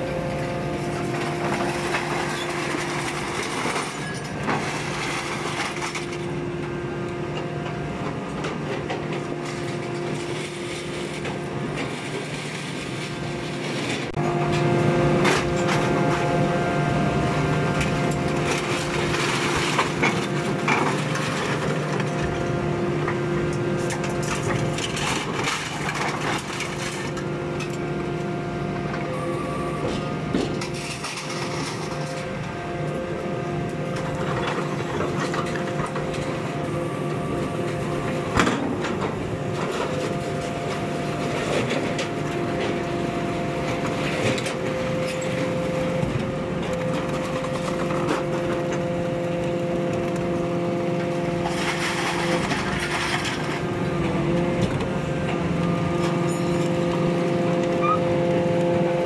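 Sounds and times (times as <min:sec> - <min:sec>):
excavator engine and hydraulics humming: 0:00.0 - 0:59.0
scrap metal clattering and crashing: 0:00.9 - 0:06.3, 0:17.8 - 0:22.6, 0:23.8 - 0:27.8, 0:29.9 - 0:32.5, 0:51.0 - 0:57.3.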